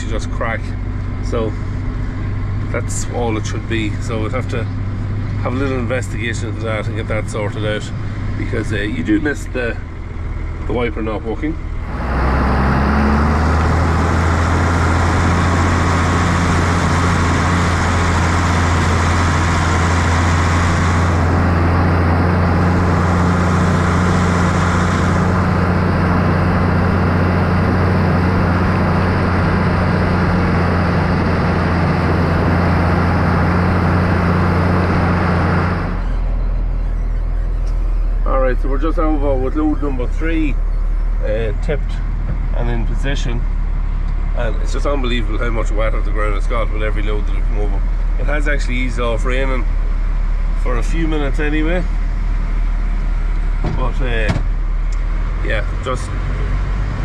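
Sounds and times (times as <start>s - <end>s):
low hum: 0.0s - 57.0s
tractor diesel engine running: 0.0s - 57.0s
tyres hissing on wet road: 11.9s - 29.0s.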